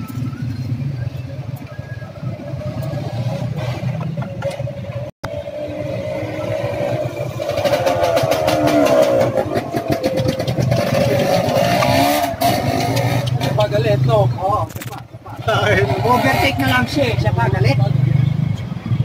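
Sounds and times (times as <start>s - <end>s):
motorcycle engine running: 0.0s - 14.4s.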